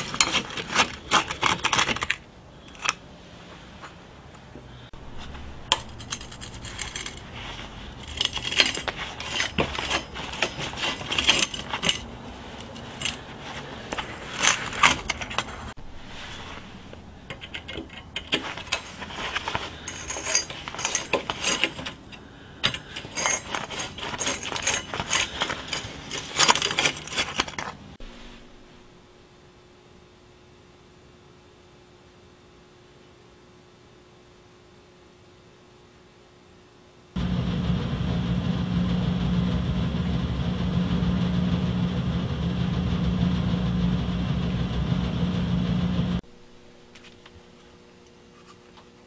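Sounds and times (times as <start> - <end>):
metal bar clinking and scraping: 5.6 - 13.3, 13.9 - 15.7, 17.2 - 27.8.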